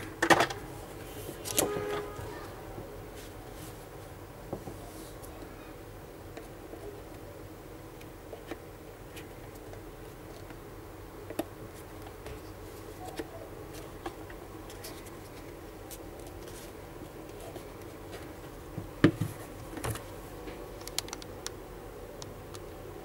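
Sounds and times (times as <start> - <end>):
steady low hum: 0.0 - 23.0
plastic parts clicking and tapping: 20.8 - 21.6.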